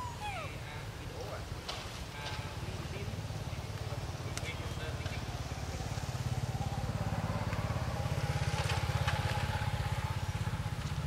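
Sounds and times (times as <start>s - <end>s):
faint engine whine: 2.3s - 11.0s.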